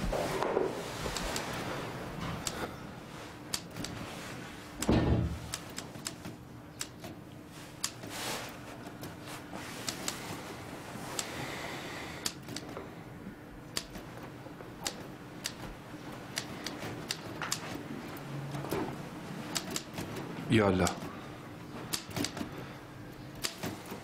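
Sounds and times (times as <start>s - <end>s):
faint room hum: 0.0s - 24.0s
typewriter keys clicking: 5.5s - 7.2s, 12.2s - 12.8s, 13.7s - 14.1s, 14.8s - 15.7s, 16.3s - 17.8s, 19.5s - 20.1s, 21.9s - 22.5s, 23.4s - 24.0s.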